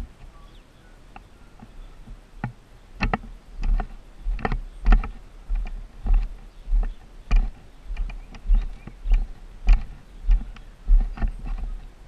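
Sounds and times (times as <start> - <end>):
footsteps on gravel: 3.2 - 12.0.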